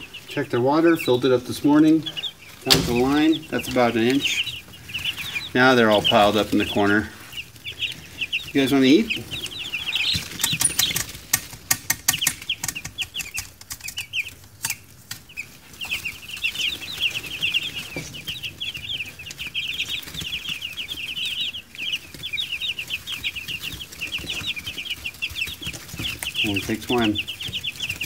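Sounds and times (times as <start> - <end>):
chicks peeping: 0.0 - 28.0
rustling: 0.0 - 28.0
sharp clicks: 10.1 - 15.2.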